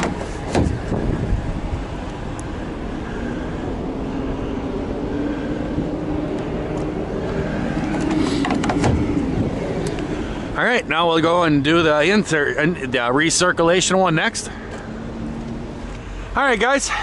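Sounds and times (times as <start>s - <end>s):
hood latches clicking shut: 0.0s - 1.0s, 7.8s - 9.2s
steady low rumble: 0.2s - 17.0s.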